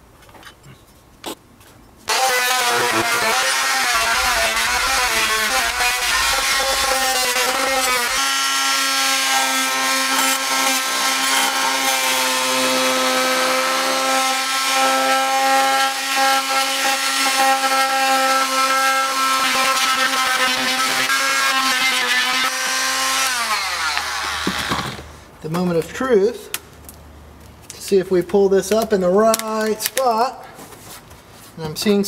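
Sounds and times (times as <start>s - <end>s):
oscillating multi-tool cutting plywood: 2.1s - 25.1s.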